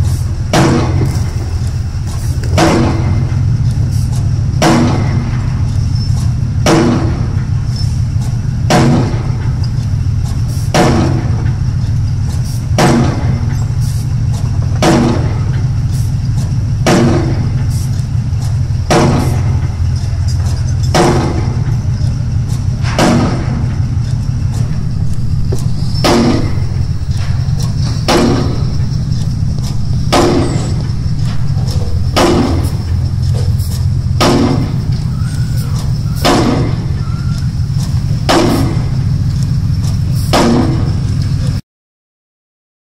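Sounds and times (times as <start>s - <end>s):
low engine drone: 0.0s - 41.6s
pile hammer striking concrete: 0.5s - 3.4s, 4.2s - 7.5s, 8.6s - 9.6s, 10.7s - 11.5s, 12.8s - 13.6s, 14.7s - 15.7s, 16.4s - 18.0s, 18.9s - 21.8s, 22.8s - 24.8s, 25.4s - 41.6s.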